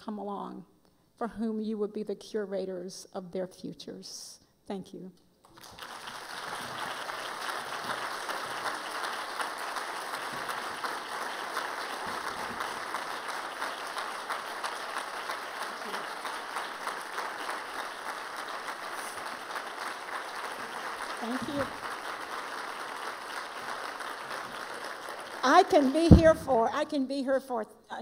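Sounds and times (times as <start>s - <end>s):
audience applauding: 5.5s - 26.6s.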